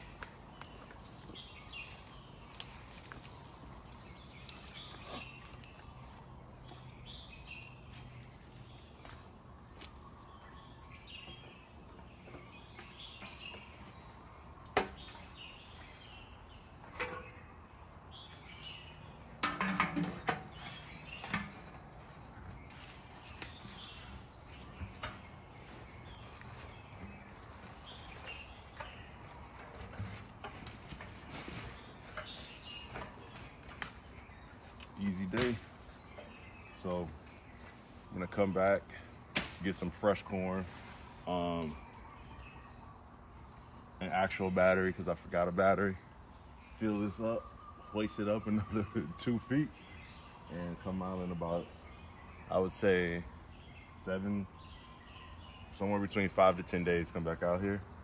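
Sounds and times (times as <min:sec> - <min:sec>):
insects trilling: 0:00.0 - 0:58.0
game feeder clunking and rustling: 0:16.8 - 0:17.5, 0:19.3 - 0:34.0.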